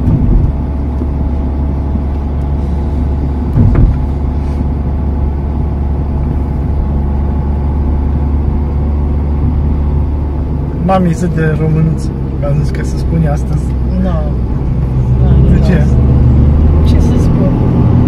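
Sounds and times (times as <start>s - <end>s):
road and engine drone in car: 0.0s - 18.0s
brief thump: 3.5s - 4.1s.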